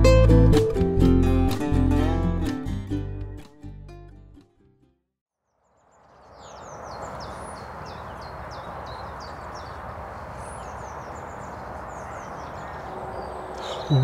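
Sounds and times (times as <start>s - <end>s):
small bird chirping: 5.5s - 14.0s.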